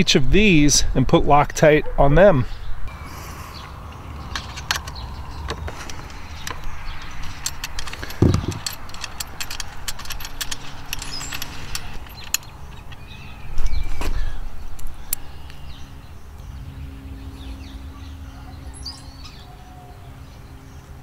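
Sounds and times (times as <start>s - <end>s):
metallic clicks of nuts and washers: 4.3s - 13.1s
dull thump: 8.2s - 8.7s.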